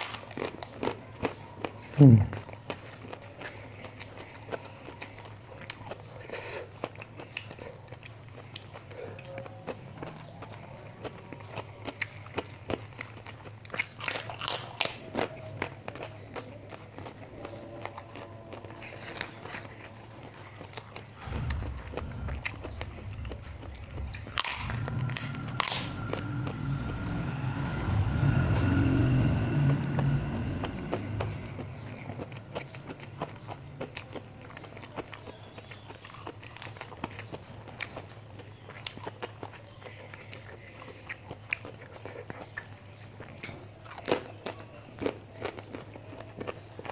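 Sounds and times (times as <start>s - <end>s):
person chewing crunchy crackers: 0.0s - 46.9s
low steady rumble: 21.0s - 34.9s.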